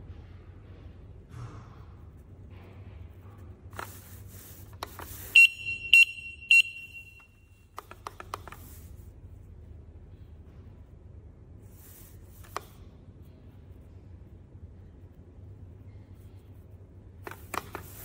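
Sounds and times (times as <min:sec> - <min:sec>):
alarm high beeps: 0:05.4 - 0:07.3.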